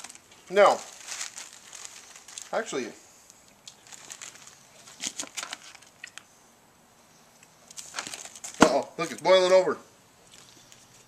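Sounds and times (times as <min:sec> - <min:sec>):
pot boiling with crackles: 0:00.0 - 0:06.3.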